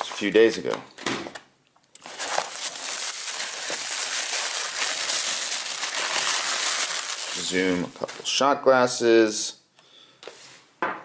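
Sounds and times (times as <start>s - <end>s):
packing paper crinkling: 2.0s - 8.3s.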